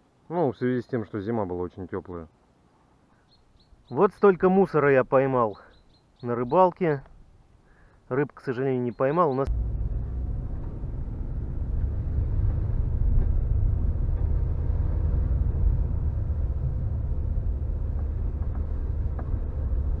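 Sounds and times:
car engine and tyres rumbling: 9.5 - 20.0.

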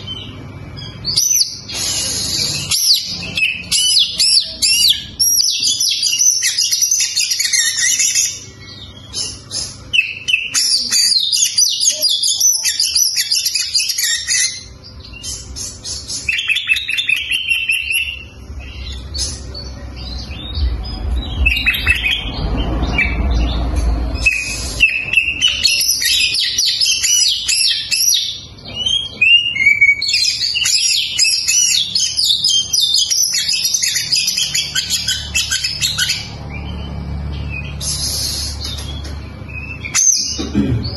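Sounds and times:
bird singing whistles and trills: 0.0 - 40.4
low rumble: 18.4 - 25.4.

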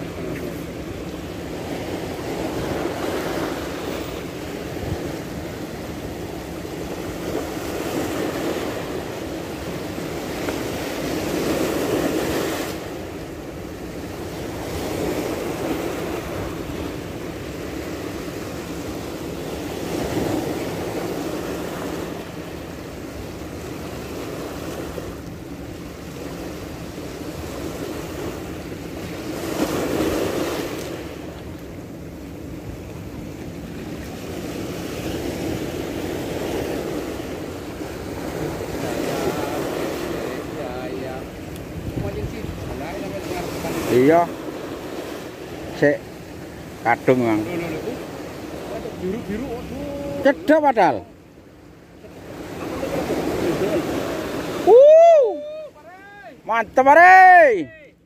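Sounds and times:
sea waves washing: 0.0 - 58.0
wind blowing on microphone: 4.5 - 5.5, 38.4 - 44.3.

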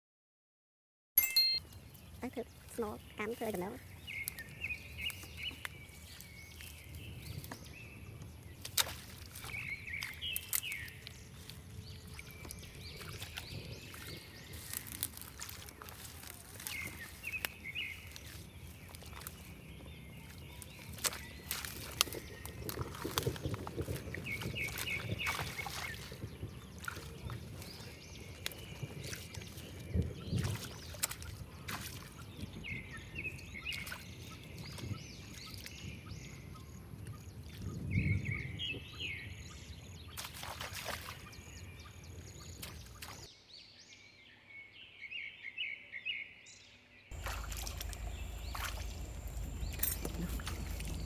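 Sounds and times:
bird chirping: 1.2 - 8.7, 41.1 - 51.0
water splashing: 8.4 - 32.6, 40.1 - 43.3, 47.1 - 51.0
steady low rumble: 47.1 - 51.0.

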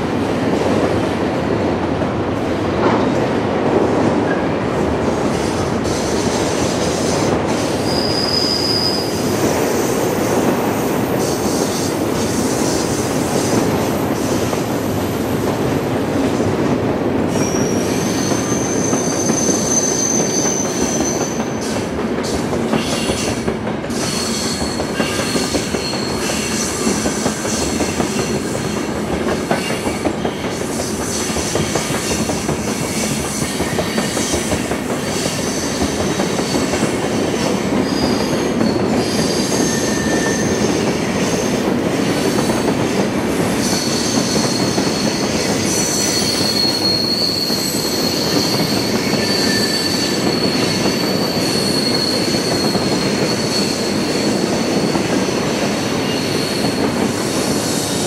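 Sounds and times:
train wheels rumbling on rail: 0.0 - 58.0
high-pitched wheel squeals: 7.8 - 9.3, 45.8 - 54.4.

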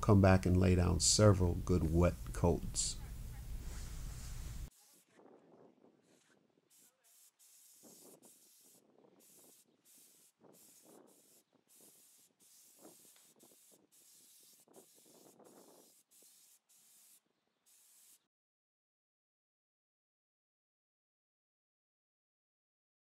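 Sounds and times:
spray gun hissing bursts: 6.7 - 18.2.

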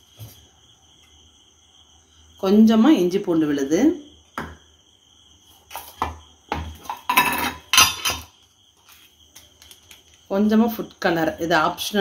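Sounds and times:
utensils clinking in steel bowl: 6.8 - 8.3.

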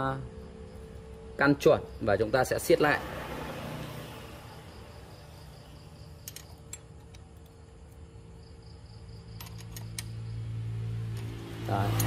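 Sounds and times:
metallic tool clicks: 6.2 - 7.5, 9.4 - 10.2.

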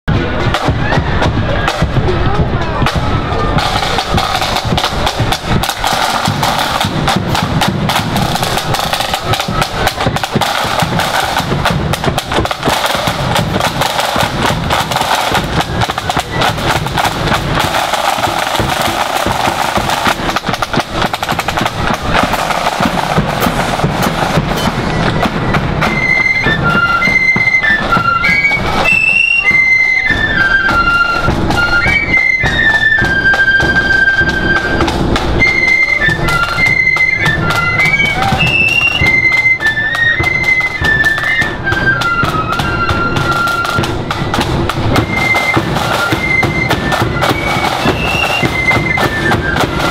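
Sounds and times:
bass drum beating: 0.1 - 25.9
flutes playing tune: 0.1 - 49.9
snare drums playing march: 0.1 - 49.9.

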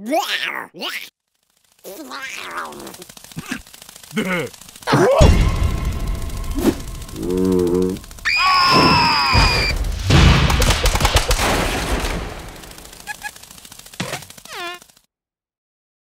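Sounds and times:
gibberish cartoon voices: 0.0 - 1.1, 1.8 - 5.4, 13.0 - 13.4
rapid rattling hits: 1.3 - 15.0
high-pitched wail: 6.7 - 9.8
falling squeal: 8.2 - 9.8.

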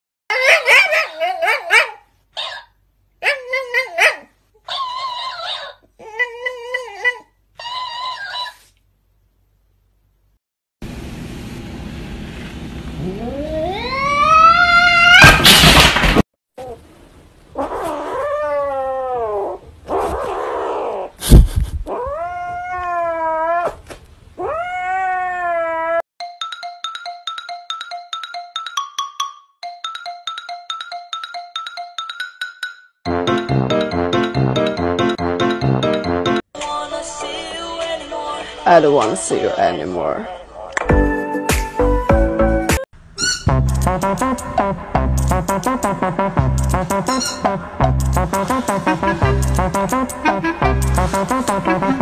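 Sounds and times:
dog whining calls: 0.3 - 8.7, 13.0 - 15.4, 47.0 - 47.5
kitten yowling: 13.0 - 15.4, 21.9 - 23.8, 24.4 - 26.0.

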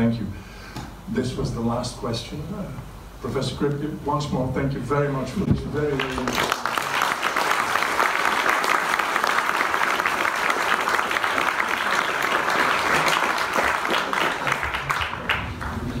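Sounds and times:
audience applauding: 5.9 - 16.0.

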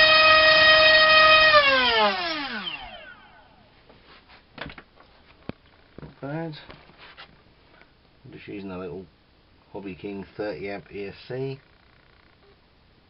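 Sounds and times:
electric motor spinning propeller: 0.0 - 3.4.

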